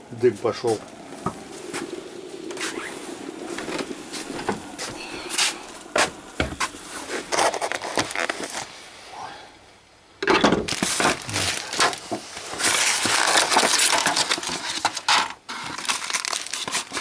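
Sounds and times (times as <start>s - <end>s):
steady low hum: 0.0s - 10.2s
footsteps: 0.2s - 8.7s.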